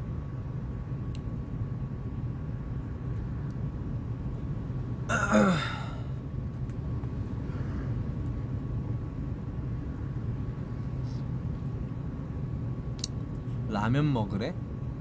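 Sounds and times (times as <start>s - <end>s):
low background rumble: 0.0s - 15.0s
man sighing: 5.1s - 6.1s.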